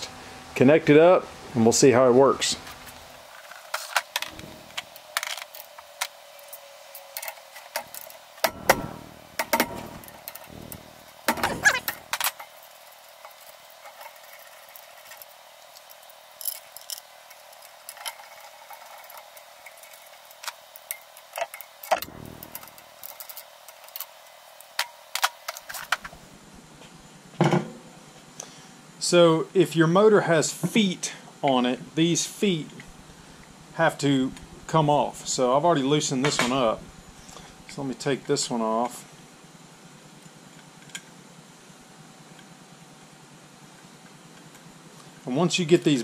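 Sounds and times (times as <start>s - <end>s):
metal parts knocking: 3.5s - 26.2s.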